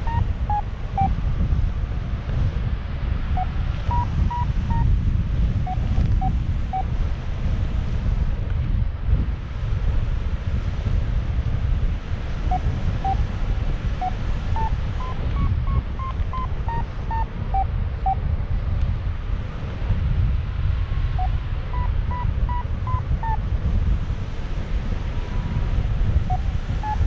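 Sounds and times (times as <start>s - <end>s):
variometer beeping: 0.0s - 1.2s, 3.3s - 7.0s, 12.4s - 18.2s, 21.1s - 23.4s, 25.2s - 27.0s
wind rumble on microphone: 0.0s - 27.0s.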